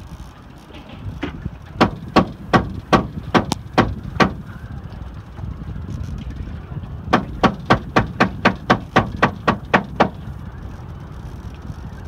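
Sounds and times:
steady low rumble: 0.0 - 12.0
sharp knocks: 1.8 - 4.4, 7.1 - 10.2.

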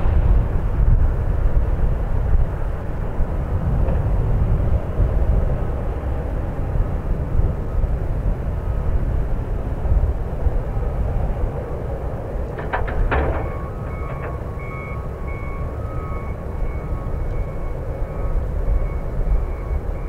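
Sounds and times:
jet engines rumbling: 0.0 - 20.0
short knocks: 12.5 - 14.6.

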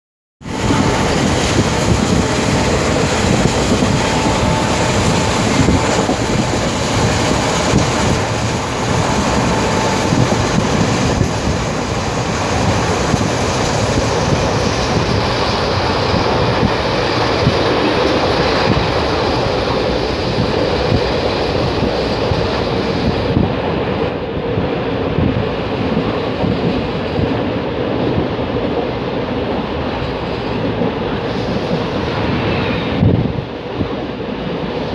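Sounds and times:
train wheels rumbling on rails: 0.4 - 34.9.

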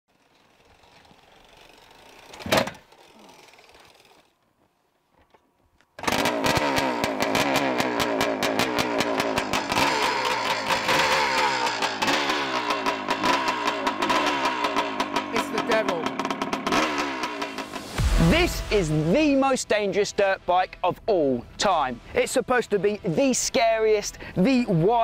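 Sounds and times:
motorcycle engine revving: 6.0 - 19.1
exhaust pops: 6.0 - 19.2
loud thump: 17.6 - 19.0.

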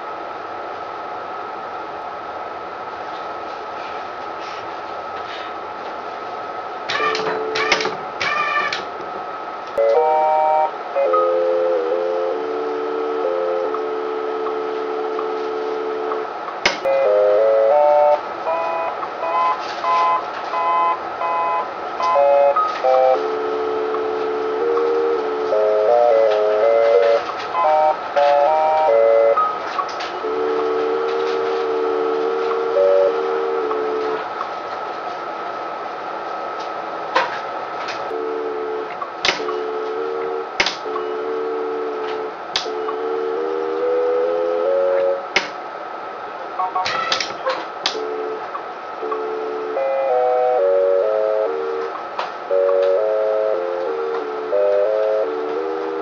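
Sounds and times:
steady high tone: 6.8 - 37.0, 38.0 - 56.0
electronic feedback tones: 6.9 - 8.9.

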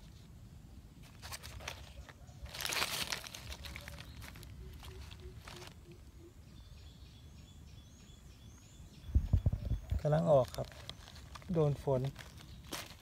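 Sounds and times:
dry leaves crackling and rustling: 1.0 - 6.1, 9.9 - 13.0.

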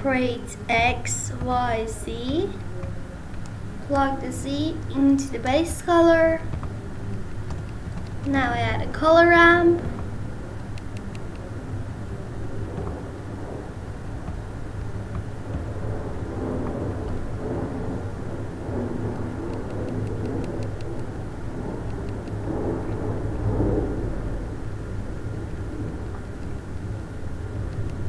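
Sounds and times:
hum: 0.0 - 28.0
low background rumble: 0.0 - 28.0
faint clicks: 27.7 - 28.0.

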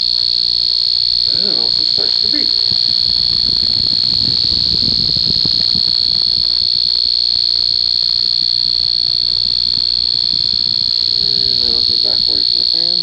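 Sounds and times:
loud high-pitched beeper tone: 1.2 - 7.0, 10.6 - 13.0.

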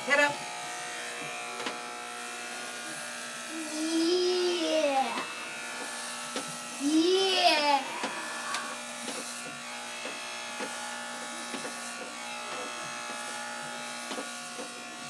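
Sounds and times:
electric hair clippers buzzing: 0.0 - 15.0.

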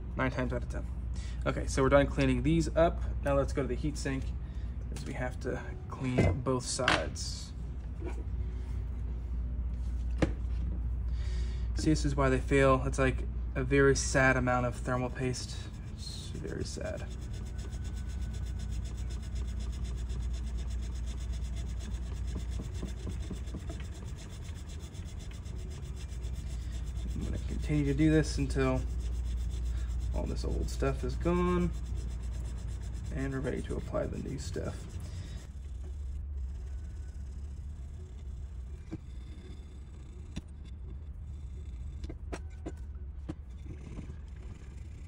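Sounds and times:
steady low hum: 0.0 - 45.0
swab scrubbing on metal: 14.6 - 36.0.

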